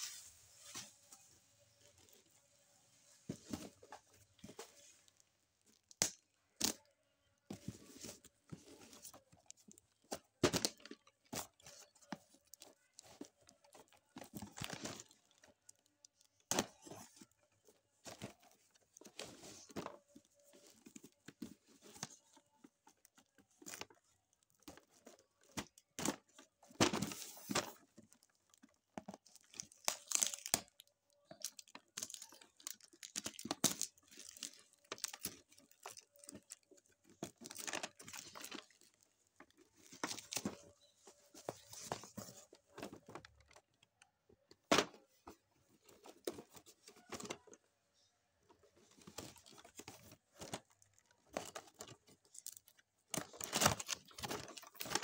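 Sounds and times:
plastic wrap crinkling: 0:27.4 - 0:43.5.

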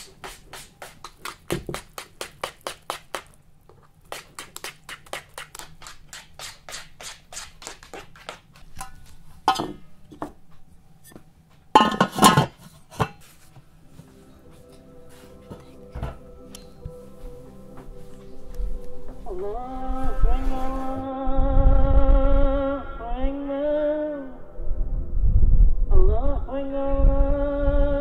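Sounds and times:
metal pot lid clattering: 0:08.8 - 0:10.4, 0:11.8 - 0:13.2.

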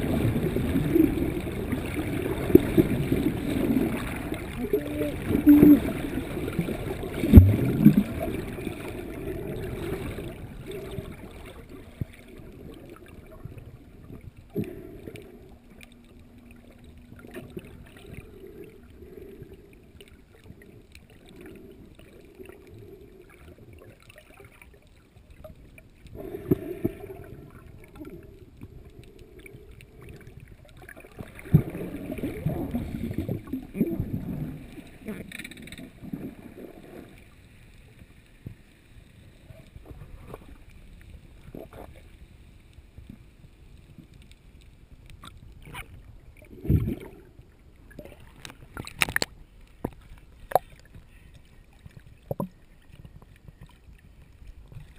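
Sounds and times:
water sloshing surges: 0:00.0 - 0:38.3
muffled underwater water rush: 0:00.0 - 0:54.9.

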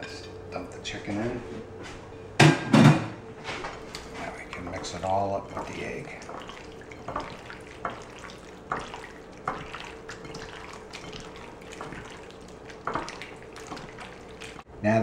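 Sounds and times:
hands squishing chicken in egg: 0:03.8 - 0:14.7.

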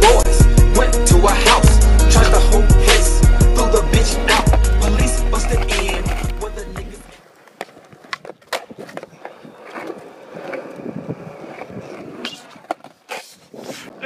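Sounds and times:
skateboard wheels rumbling: 0:00.0 - 0:14.0
skateboard clacks and knocks: 0:04.2 - 0:13.3.

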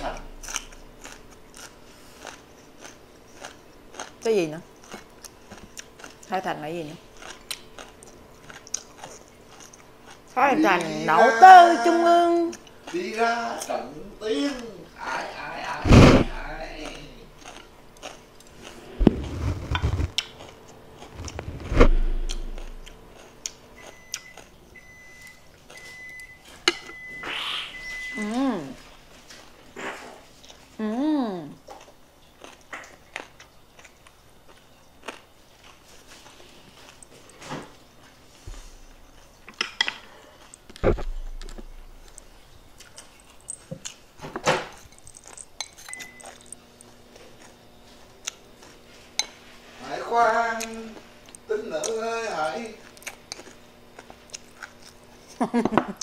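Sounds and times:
faint steady hum: 0:00.0 - 0:56.0
dull thumps: 0:40.8 - 0:41.9.

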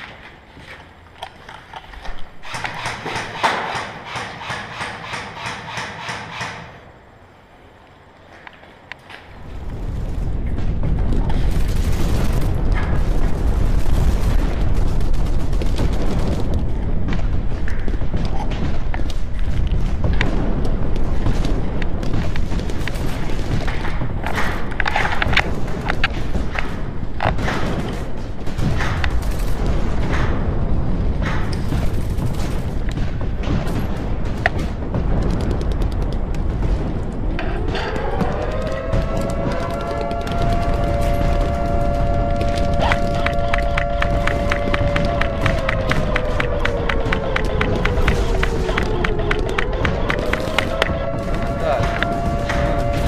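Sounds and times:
airsoft gunshots: 0:02.4 - 0:06.9
wind rumble on microphone: 0:08.8 - 0:53.0
sharp clicks: 0:42.4 - 0:52.8.

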